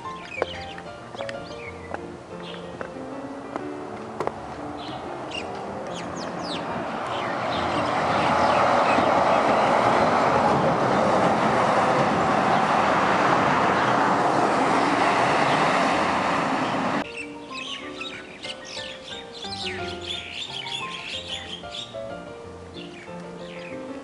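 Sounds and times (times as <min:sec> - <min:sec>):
birds chirping: 0:00.0 - 0:22.1, 0:22.7 - 0:24.0
heavy truck passing: 0:03.1 - 0:17.1.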